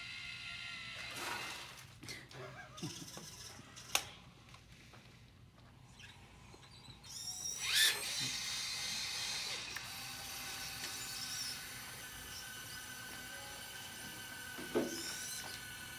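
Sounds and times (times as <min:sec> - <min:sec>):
small electric motors whirring: 0:00.0 - 0:01.9, 0:05.8 - 0:15.9.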